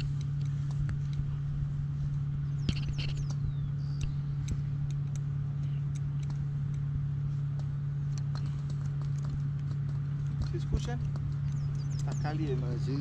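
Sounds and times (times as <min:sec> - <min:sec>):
low mechanical hum: 0:00.0 - 0:13.0
light clicks: 0:02.6 - 0:12.9.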